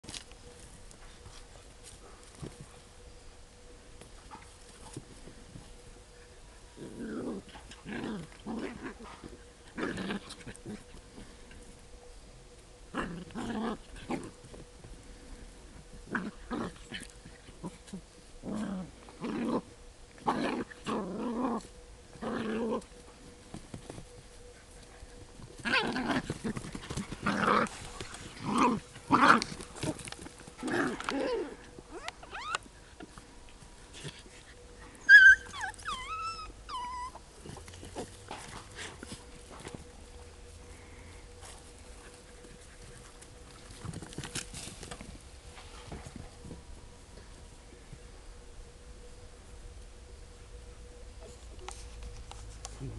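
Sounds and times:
dogs growling: 0:06.7 - 0:11.7, 0:12.9 - 0:14.4, 0:16.0 - 0:23.0, 0:25.6 - 0:32.5
dog yelping whine: 0:31.1 - 0:32.7, 0:35.0 - 0:37.2.

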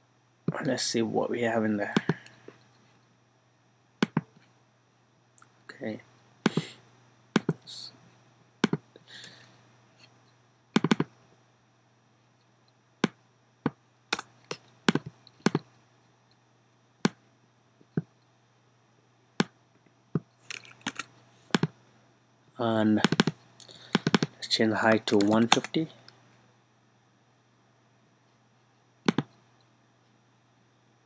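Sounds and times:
faint low hum: 0:00.0 - 0:31.0
computer mouse and keyboard clicks: 0:10.8 - 0:11.1, 0:20.4 - 0:21.7, 0:23.0 - 0:25.8, 0:29.1 - 0:29.4.

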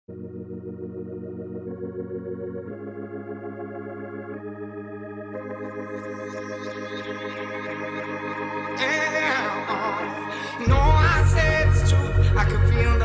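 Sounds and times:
organ-like keyboard chords: 0:00.1 - 0:13.0
bright shimmering synth layer: 0:04.9 - 0:13.0.

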